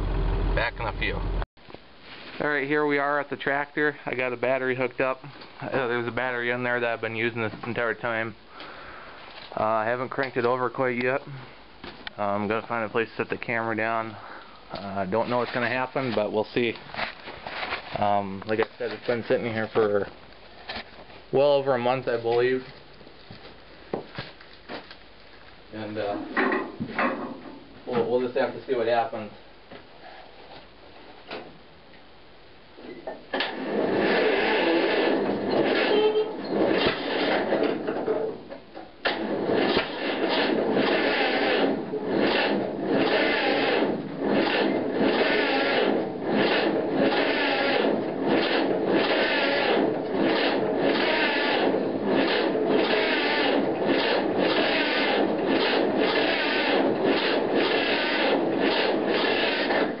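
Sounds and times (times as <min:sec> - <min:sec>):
starter cranking tractor engine: 0:33.4 - 0:38.0, 0:39.0 - 1:00.0.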